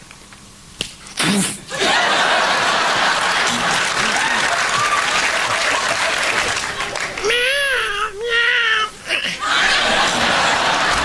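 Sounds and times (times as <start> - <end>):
vocal outburst: 1.2 - 1.7
audience applause: 1.7 - 7.9, 9.4 - 11.0
audience laughter: 1.7 - 7.9, 9.2 - 11.0.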